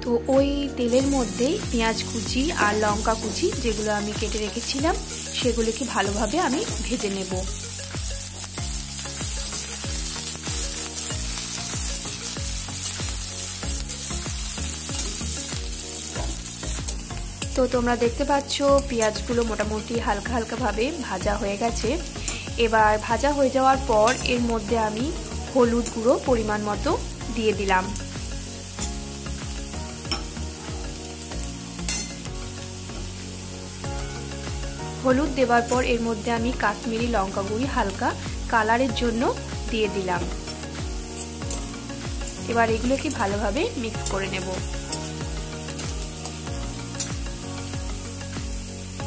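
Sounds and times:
background music with beat: 0.0 - 19.9, 20.5 - 49.0
onion sizzling in oil: 0.1 - 49.0
metal spatula stirring: 14.8 - 17.2, 40.4 - 42.3.

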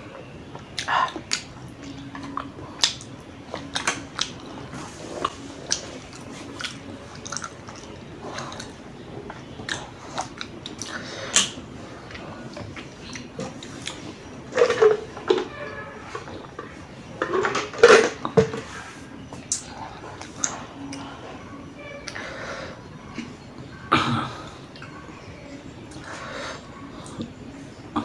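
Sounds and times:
chewing noodles: 0.5 - 14.1.

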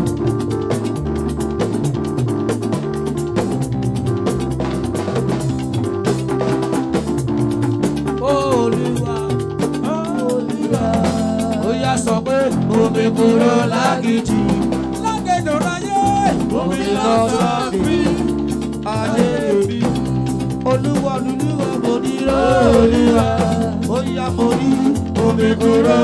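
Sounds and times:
gospel band playing: 0.0 - 26.0
singing: 21.8 - 26.0.

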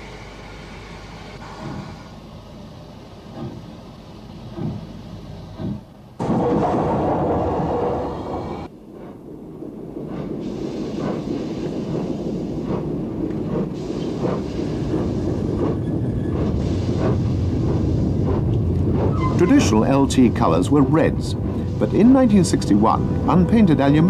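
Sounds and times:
steam locomotive exhaust beats: 0.0 - 24.0.

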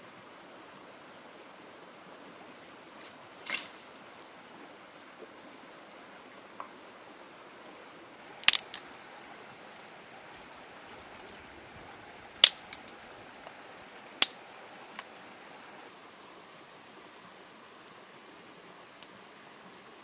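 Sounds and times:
stream rushing: 0.0 - 20.0
wood fire crackling and popping: 8.2 - 9.0, 12.2 - 15.1.

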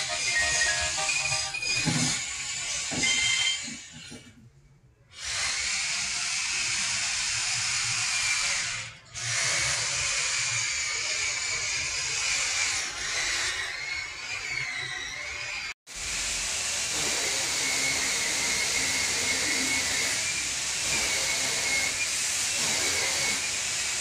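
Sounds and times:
music track: 0.0 - 2.2.

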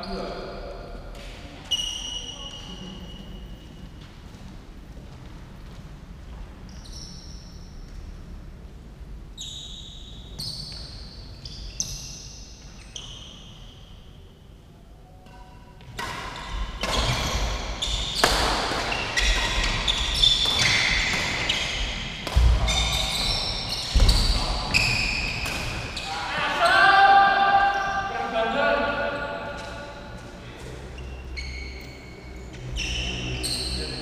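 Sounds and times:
shoe squeaks on court: 1.7 - 3.6, 6.7 - 7.9, 9.4 - 14.0, 16.3 - 26.2, 31.0 - 34.0
racket hitting shuttlecock: 15.8 - 23.2, 25.2 - 26.0.

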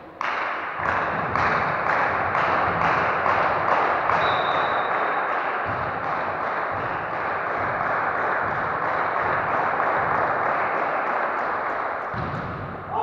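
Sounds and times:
loud rhythmic din with sharp beats: 0.0 - 13.0
referee's whistle: 4.2 - 5.0.

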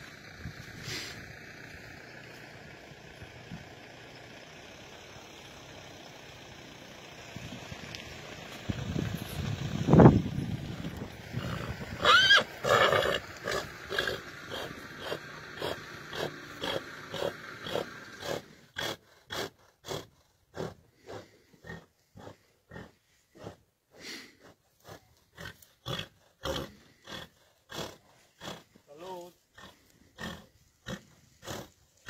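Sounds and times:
horses sniffing: 0.6 - 1.4, 10.7 - 32.0
horse squeal: 11.4 - 14.2.

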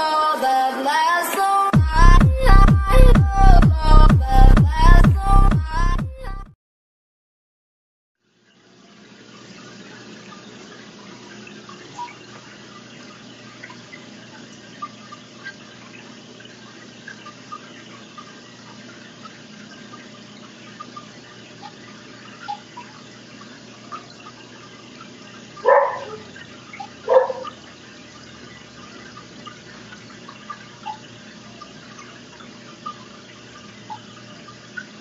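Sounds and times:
water trickling: 8.5 - 35.0
water drips and plinks: 9.0 - 35.0.

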